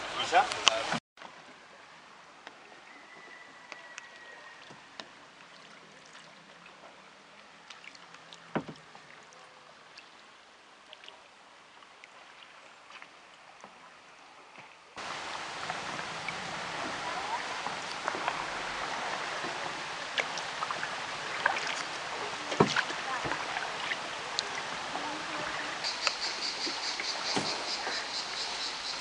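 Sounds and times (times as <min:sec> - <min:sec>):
paddle drips and splashes: 0:00.0 - 0:29.0
steady rush of noise: 0:15.0 - 0:29.0.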